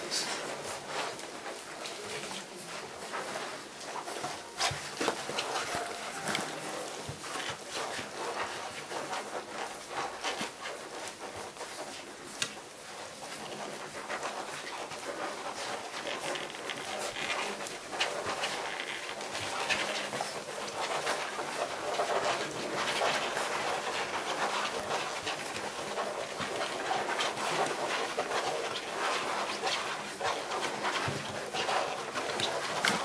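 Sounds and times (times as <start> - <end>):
puppies suckling and smacking: 0.0 - 33.0.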